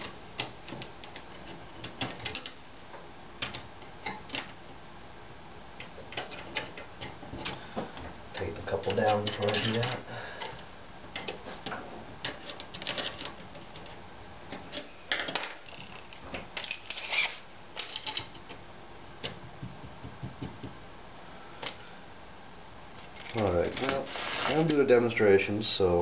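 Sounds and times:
tape measure extending: 16.6s - 18.0s
hands knocking on metal frame: 19.3s - 20.8s.

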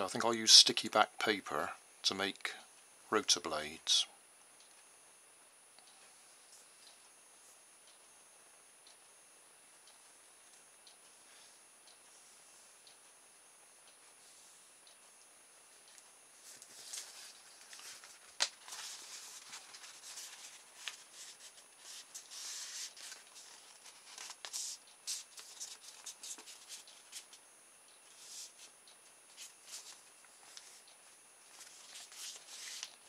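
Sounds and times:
paper rustling and crinkling: 16.4s - 26.9s.

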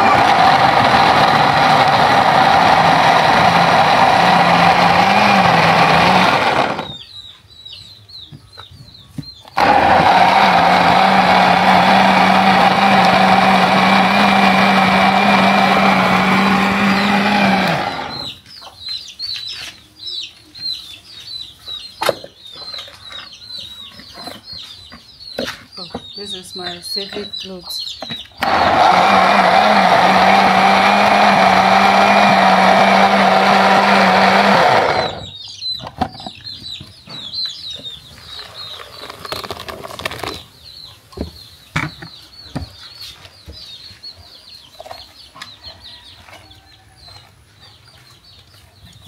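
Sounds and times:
blender running: 0.0s - 7.0s, 9.6s - 18.4s, 28.4s - 35.3s.

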